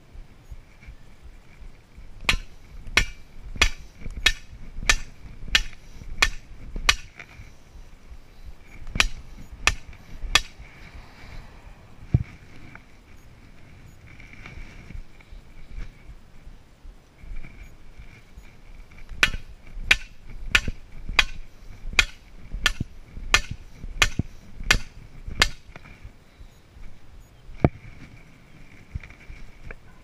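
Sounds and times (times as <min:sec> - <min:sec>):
sledgehammer blows on stake: 0:02.2 - 0:07.2, 0:08.9 - 0:10.6, 0:19.2 - 0:25.7.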